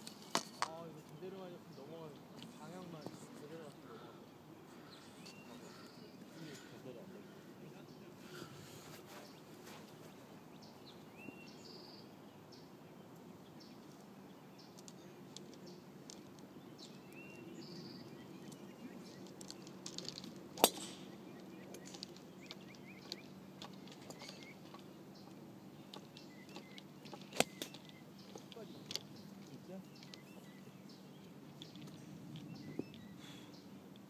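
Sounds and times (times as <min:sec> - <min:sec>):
rising bird chirp: 0:09.1 - 0:19.8, 0:20.6 - 0:33.8.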